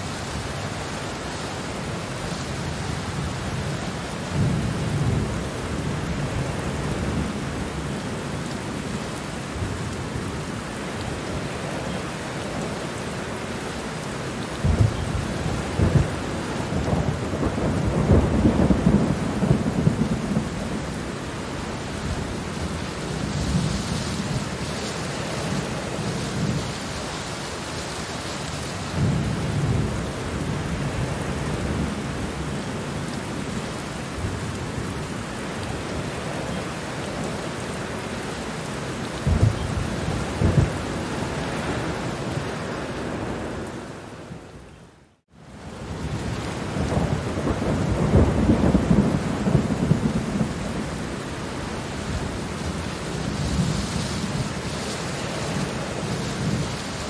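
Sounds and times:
rain falling on plants: 0.0s - 57.0s
rolling thunder: 14.6s - 21.1s, 39.2s - 41.9s, 45.9s - 51.1s.

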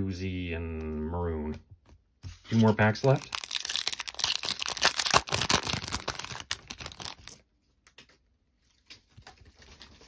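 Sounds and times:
foil wrapper tearing and crinkling: 2.6s - 7.4s.

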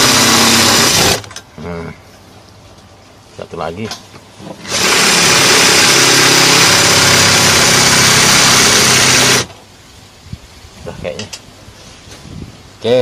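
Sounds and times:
cordless drill cutting metal: 0.0s - 1.2s, 4.7s - 9.5s.

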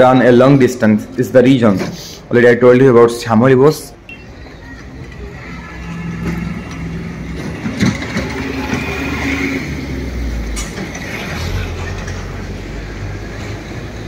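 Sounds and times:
bus engine humming: 3.9s - 14.0s.

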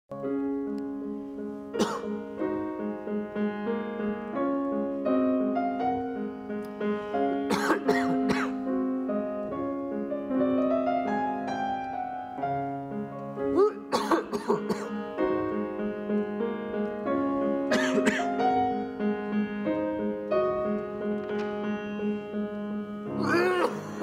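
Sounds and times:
grand piano playing: 0.1s - 24.0s
person coughing: 1.8s - 2.2s, 7.5s - 8.6s, 13.5s - 15.0s, 17.7s - 18.4s, 23.2s - 24.0s.

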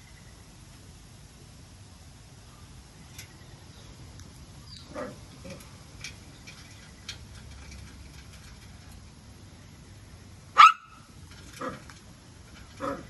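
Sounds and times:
small dog barking: 4.9s - 5.2s, 10.5s - 11.8s, 12.8s - 13.0s.

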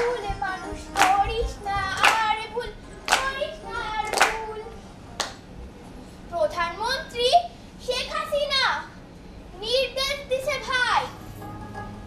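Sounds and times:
child singing: 0.0s - 4.8s
hand claps: 0.9s - 1.4s, 2.0s - 2.3s, 3.1s - 3.4s, 4.0s - 4.4s, 5.2s - 5.4s.

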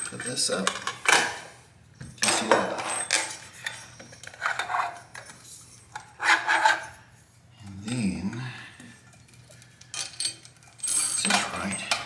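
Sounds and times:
metal parts scraping and clinking: 2.2s - 7.0s, 9.1s - 12.0s.

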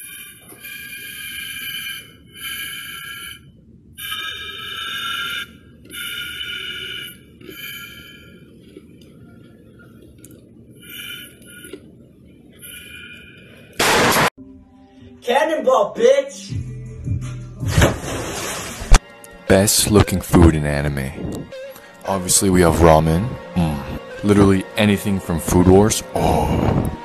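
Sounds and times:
air blow gun hissing and whistling: 0.0s - 8.4s.

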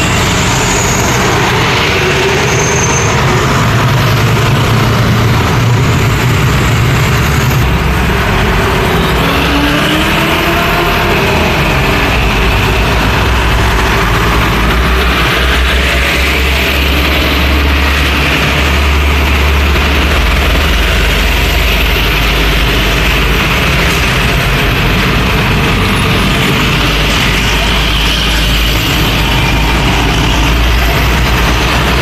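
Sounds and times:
diesel trucks driving past: 0.0s - 32.0s
motorbikes: 0.0s - 32.0s.

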